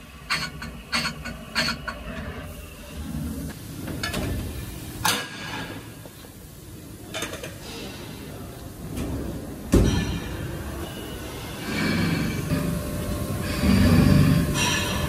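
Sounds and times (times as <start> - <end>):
factory machinery running: 7.6 - 15.0.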